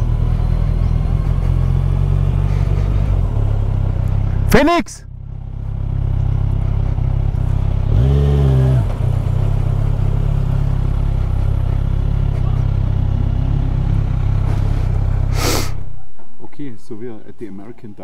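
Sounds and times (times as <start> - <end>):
motorcycle engine low hum: 0.0 - 18.0.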